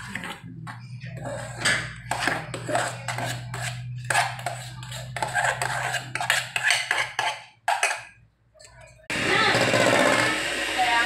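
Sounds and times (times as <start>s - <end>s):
spatula scraping metal bowl: 0.0s - 8.2s.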